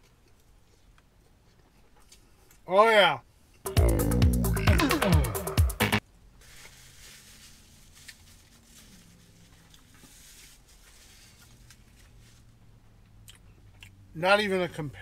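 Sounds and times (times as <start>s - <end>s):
faint chewing: 0.0s - 2.6s, 13.1s - 14.0s.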